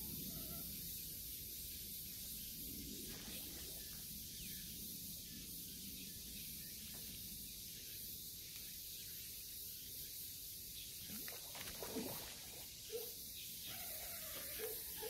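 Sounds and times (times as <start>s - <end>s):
faint steady hiss: 0.0s - 13.8s.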